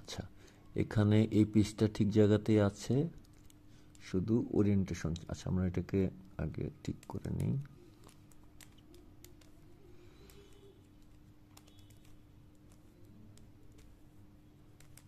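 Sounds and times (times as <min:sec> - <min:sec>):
plastic puzzle pieces clicking: 0:14.8 - 0:15.0.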